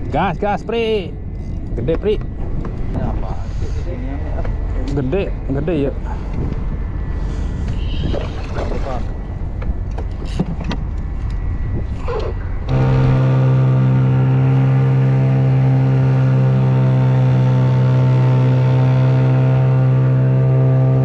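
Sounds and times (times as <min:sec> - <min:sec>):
wind buffeting microphone: 0:00.0 - 0:13.9
outboard motor running: 0:12.0 - 0:21.0.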